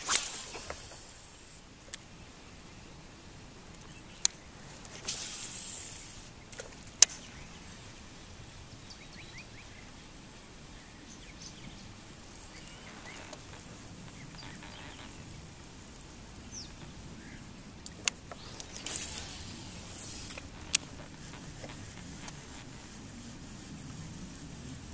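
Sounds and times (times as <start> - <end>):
faint bird chirps: 5.5 - 15.4, 18.3 - 21.8.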